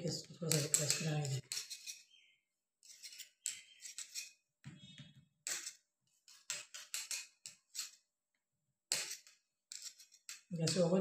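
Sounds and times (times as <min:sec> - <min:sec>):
scraping and crackling of breadcrumbs: 0:08.9 - 0:10.5.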